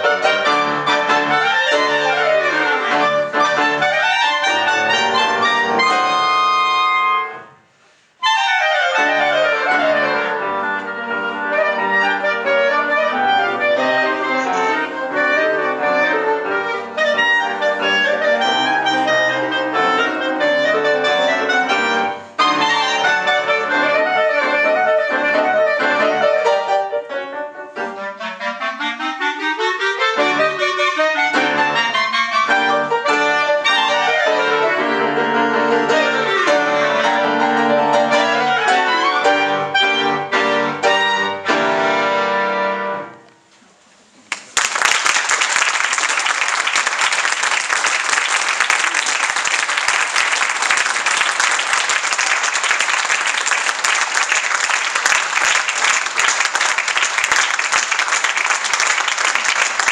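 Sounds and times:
audience applauding: 0:44.2 - 0:59.9.

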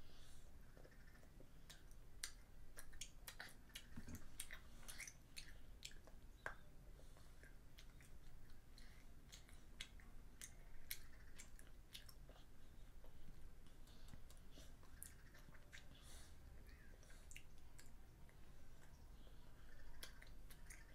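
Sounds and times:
child chewing chocolate: 0:00.0 - 0:20.9
mouth clicks and snaps: 0:00.8 - 0:06.7, 0:07.4 - 0:16.0, 0:19.8 - 0:20.9.

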